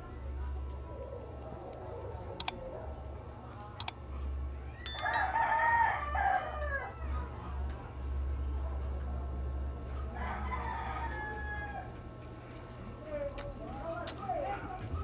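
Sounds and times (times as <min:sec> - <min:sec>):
rooster crowing: 0:10.2 - 0:11.9.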